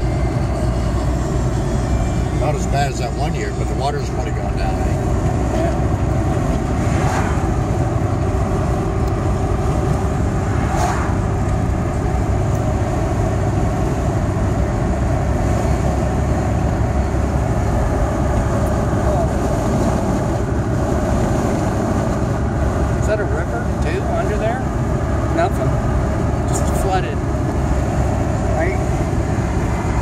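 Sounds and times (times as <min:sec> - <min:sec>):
car road and engine noise: 0:00.0 - 0:30.0
oncoming traffic whooshing past: 0:06.4 - 0:08.0, 0:10.1 - 0:11.8.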